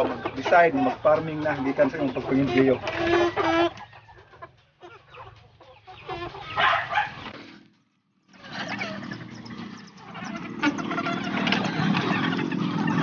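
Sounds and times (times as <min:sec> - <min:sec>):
chickens clucking: 0:00.0 - 0:13.0
motor engine running: 0:07.2 - 0:13.0.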